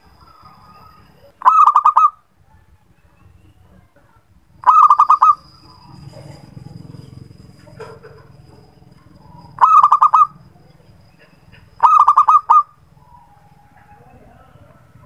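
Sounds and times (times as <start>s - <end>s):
dove cooing staccato notes: 1.4s - 2.2s, 4.6s - 14.9s.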